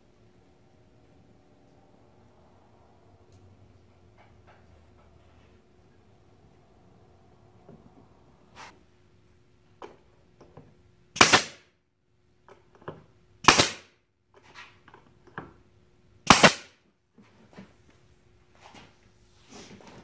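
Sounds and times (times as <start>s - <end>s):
nail gun firing: 11.2s - 11.6s, 13.4s - 13.9s, 16.2s - 16.8s.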